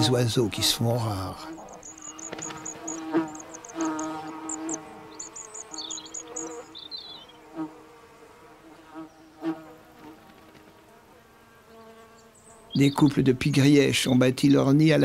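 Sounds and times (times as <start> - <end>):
flying insect buzzing: 0.0 - 13.0
small bird chirping: 1.5 - 7.6, 11.7 - 13.2.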